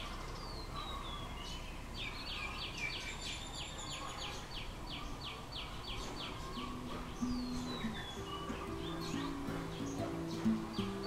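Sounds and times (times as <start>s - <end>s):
background hiss: 0.0s - 11.0s
bird calling descending notes: 6.2s - 11.0s.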